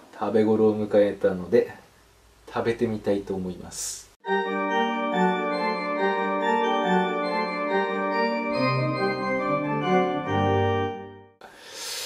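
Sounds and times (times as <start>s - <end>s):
organ chords: 4.2s - 11.4s.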